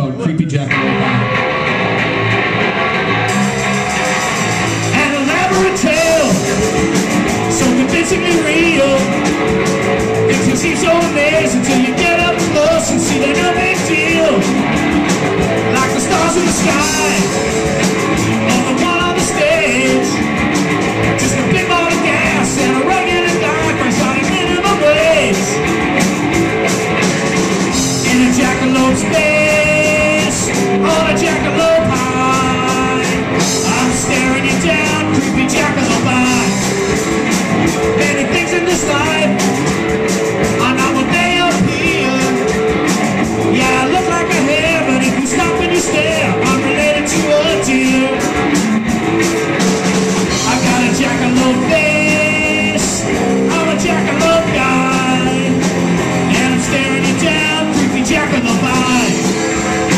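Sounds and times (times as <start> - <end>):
live rock band playing: 0.0 - 59.9
man singing into microphone: 4.9 - 6.6, 7.5 - 9.3, 10.2 - 14.6, 15.6 - 17.5, 18.3 - 20.2, 21.2 - 25.6, 27.9 - 36.6, 37.8 - 39.5, 40.5 - 42.6, 43.4 - 48.4, 50.3 - 59.4.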